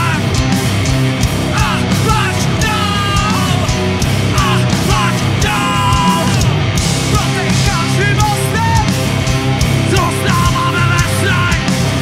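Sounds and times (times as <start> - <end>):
drum kit beat: 0.0 - 12.0
electric guitar: 0.0 - 12.0
person singing: 1.5 - 6.5, 7.1 - 9.0, 9.8 - 12.0.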